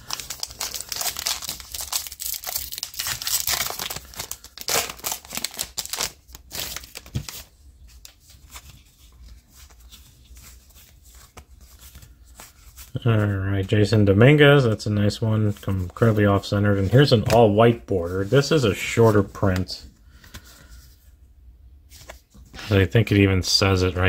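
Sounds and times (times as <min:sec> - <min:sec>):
wrapper crinkling and tearing: 0:00.0 - 0:07.5
cards rustling and ticking: 0:00.0 - 0:13.8.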